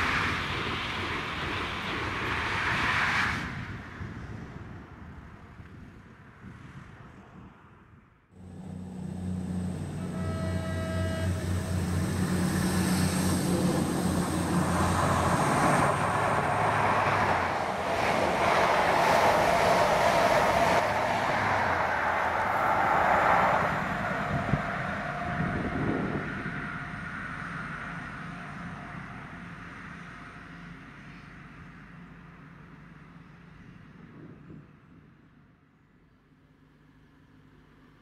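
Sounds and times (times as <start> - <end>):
train coaches rushing on rails: 0.0 - 3.8, 8.6 - 31.1
diesel engine humming: 8.4 - 33.5
train horn: 9.5 - 12.2.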